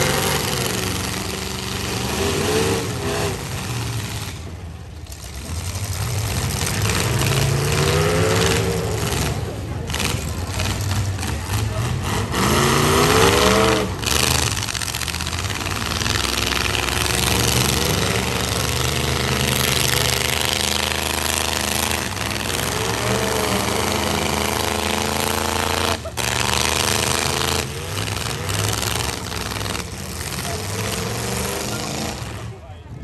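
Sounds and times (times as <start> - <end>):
truck engines revving: 0.0 - 33.0.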